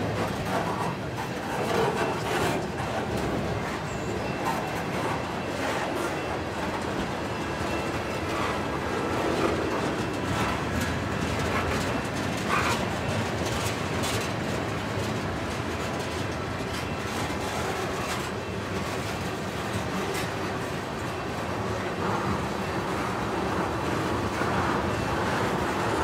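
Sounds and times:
train wheels rumbling on rail: 0.0 - 26.0.

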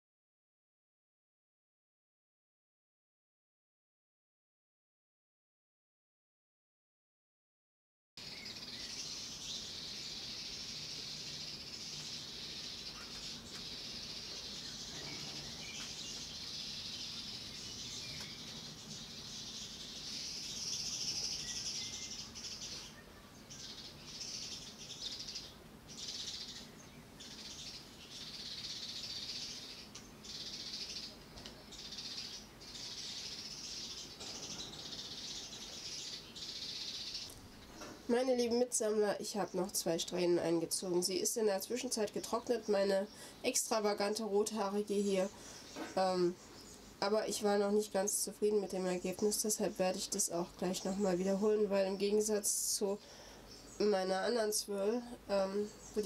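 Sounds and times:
birds chirping: 8.2 - 56.0.

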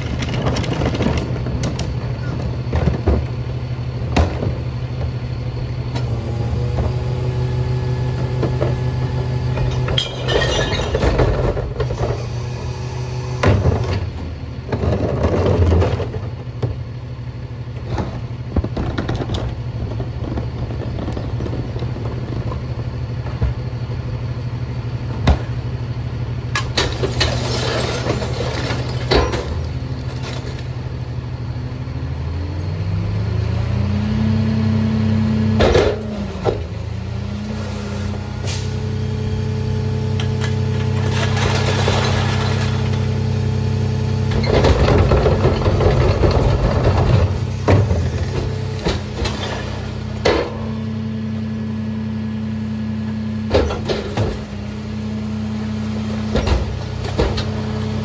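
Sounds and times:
recyclables crashing into hopper: 0.0 - 3.4, 9.5 - 12.0, 26.6 - 31.0, 40.2 - 43.5, 44.3 - 50.7.

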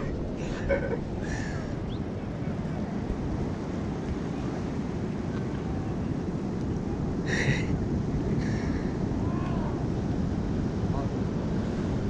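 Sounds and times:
wind rumble on microphone: 0.0 - 12.0.

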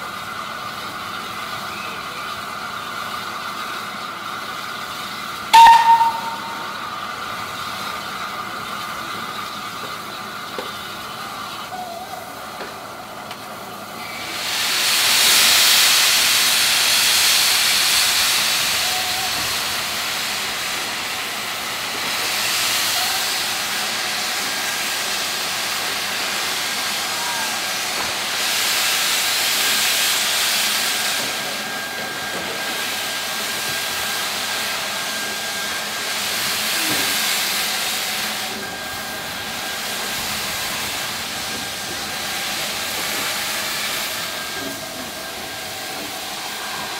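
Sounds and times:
steam hissing: 13.4 - 46.9.

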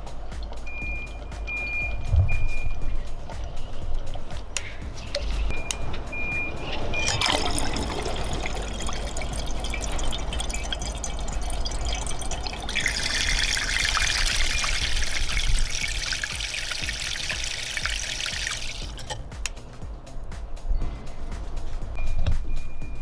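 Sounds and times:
water churning and splashing: 7.0 - 19.2.

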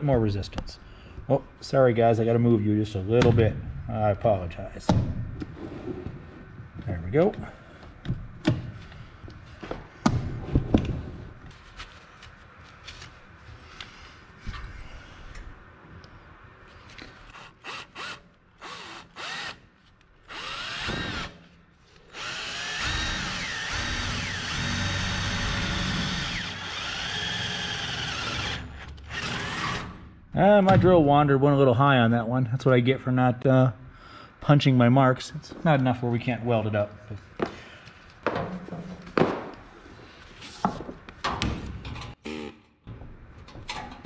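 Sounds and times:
cordless drill drilling sheet metal: 17.3 - 19.6, 20.3 - 21.4, 22.1 - 30.0.

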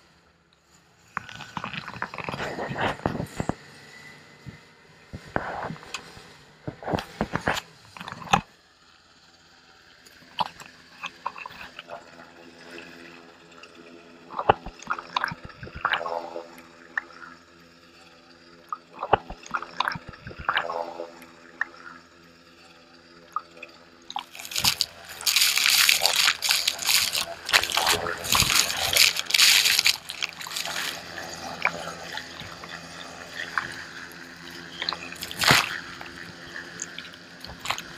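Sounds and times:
sea water sloshing and splashing: 14.4 - 16.5, 19.0 - 21.1, 24.1 - 37.9
helicopter hum: 24.1 - 37.9
waves breaking over camera: 24.1 - 37.9.

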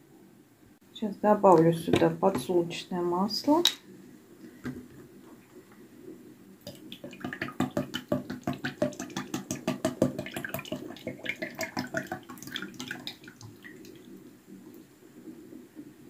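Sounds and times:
liquid splashing: 6.6 - 14.2
oil gurgling out of a bottle: 6.7 - 14.1.

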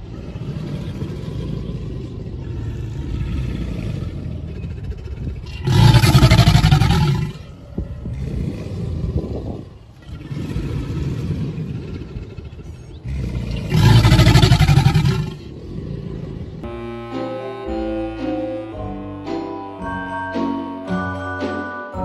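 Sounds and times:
alligator bellowing: 0.0 - 16.7.

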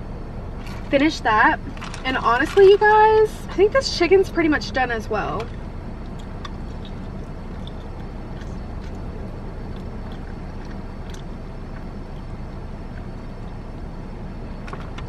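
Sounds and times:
low vehicle rumble: 0.0 - 15.0
chewing and smacking: 5.4 - 15.0.

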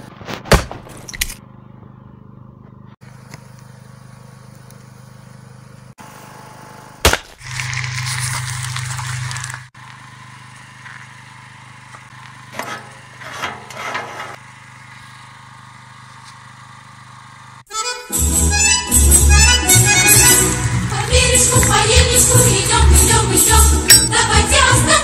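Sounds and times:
low steady hum: 20.5 - 24.7.

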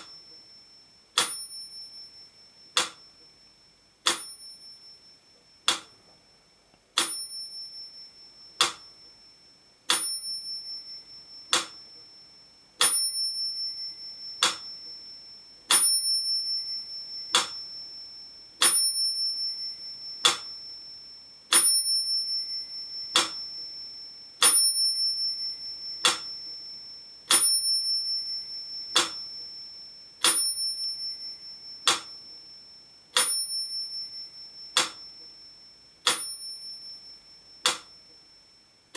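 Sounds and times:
metronome bell ringing: 0.0 - 38.7
metronome ticking: 1.2 - 1.8, 2.6 - 3.4, 4.0 - 4.6, 5.6 - 6.1, 8.5 - 9.2, 9.9 - 12.2, 12.8 - 15.0, 16.7 - 17.7, 18.6 - 20.7, 21.5 - 26.7, 27.3 - 29.6, 30.2 - 32.5, 33.2 - 35.4, 36.0 - 36.6, 37.6 - 38.0.

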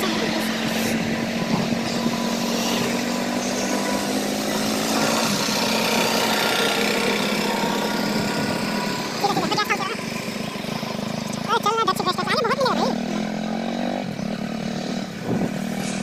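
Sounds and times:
wind on microphone: 0.0 - 3.0, 14.9 - 16.0
motorcycle engine running: 0.0 - 16.0.

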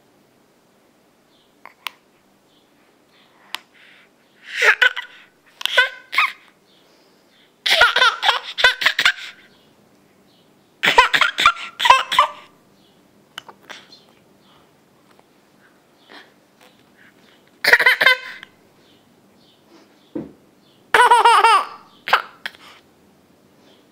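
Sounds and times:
baby giggling: 4.4 - 6.5, 7.6 - 9.5, 10.8 - 12.5, 17.6 - 18.5, 20.9 - 22.6.

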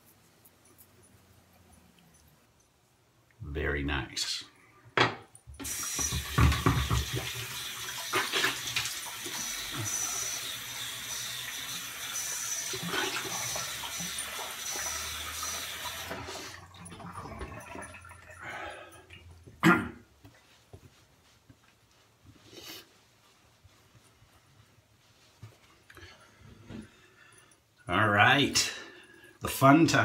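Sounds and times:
sink tap running: 5.6 - 18.4.

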